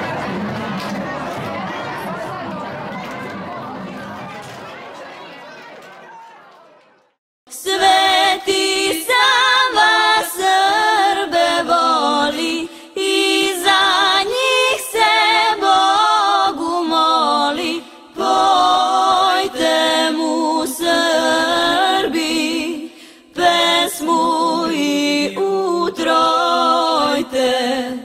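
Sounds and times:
choir singing unaccompanied: 7.5s - 28.0s.

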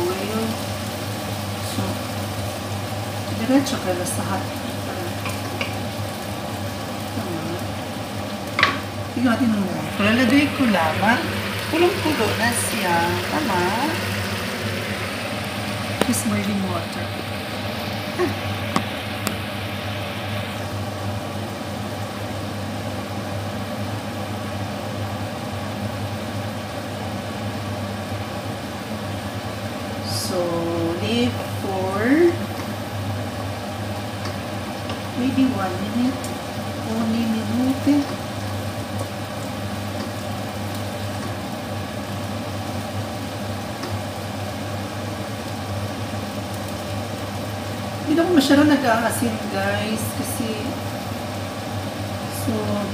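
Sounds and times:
appliance motor humming: 0.0s - 21.2s, 29.3s - 52.9s
steady low hum: 0.0s - 24.3s
boiling water hissing in pan: 0.0s - 52.9s.

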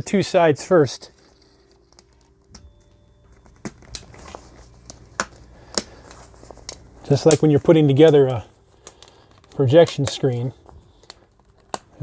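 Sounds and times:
fabric handling noise: 0.8s - 12.0s.

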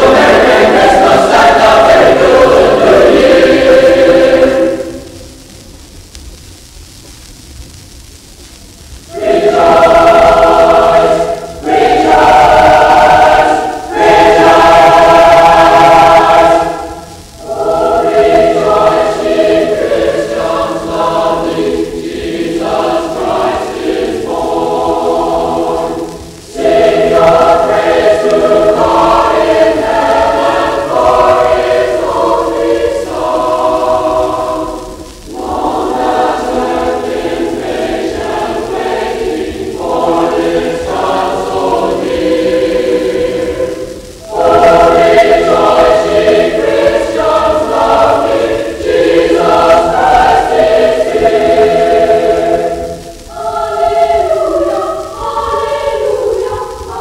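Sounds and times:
choir singing in chords: 0.0s - 5.5s, 9.1s - 57.0s.

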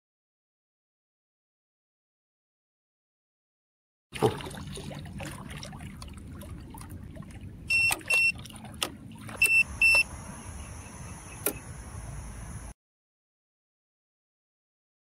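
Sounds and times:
high electronic buzzer beeps: 7.7s - 8.4s, 9.4s - 11.7s
sharp click: 11.4s - 11.6s.

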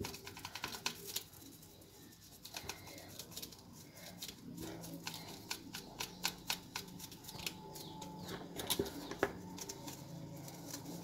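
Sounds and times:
brush scrubbing plastic comb: 0.0s - 8.0s.

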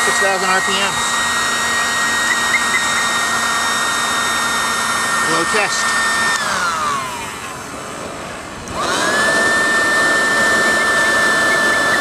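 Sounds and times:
jet engine whining: 0.0s - 12.0s.

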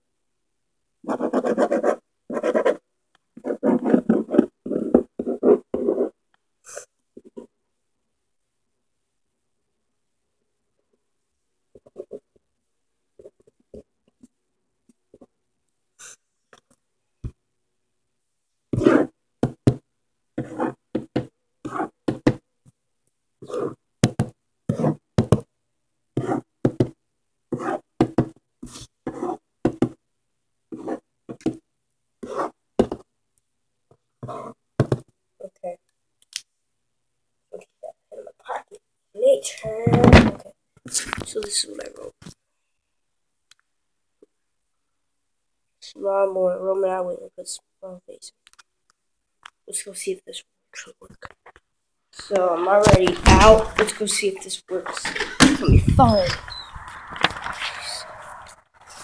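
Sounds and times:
pen writing on paper: 1.0s - 2.8s, 3.4s - 6.2s, 18.8s - 19.1s, 20.4s - 22.3s, 23.4s - 23.8s, 24.7s - 25.4s, 26.2s - 26.8s, 27.5s - 29.9s, 30.7s - 31.6s, 32.2s - 33.0s, 34.2s - 34.6s.

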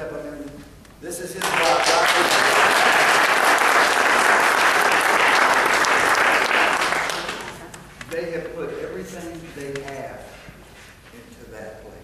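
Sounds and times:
congregation applauding: 1.3s - 7.8s.

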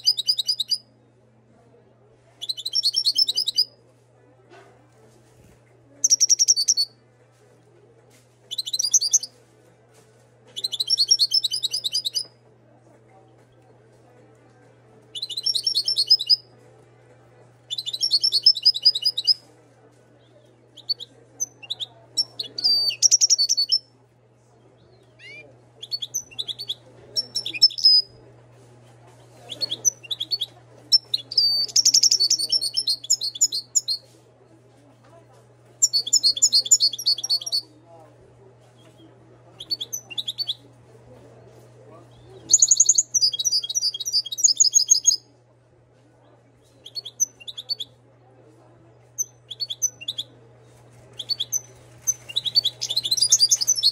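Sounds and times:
faint low hum: 0.0s - 53.9s
goldfinch twittering song: 2.4s - 3.6s, 15.2s - 16.4s, 21.7s - 23.8s.

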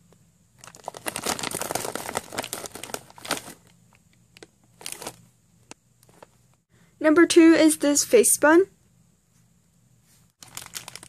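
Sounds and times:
plastic packaging crinkling: 0.6s - 5.2s, 10.4s - 11.0s.

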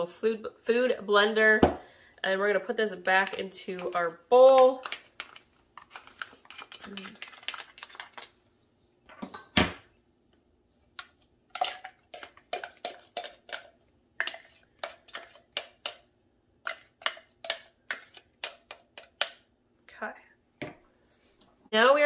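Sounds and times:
plastic spoon scraping and tapping: 3.1s - 8.3s, 11.0s - 19.4s.

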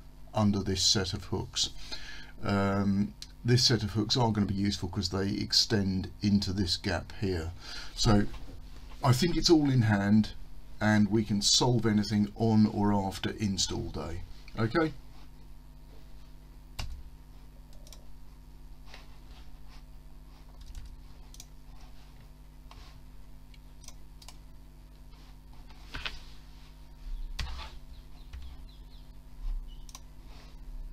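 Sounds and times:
low electrical hum: 0.0s - 30.9s
computer mouse clicking: 17.7s - 18.1s, 20.5s - 21.6s, 23.8s - 24.4s, 29.8s - 30.1s.

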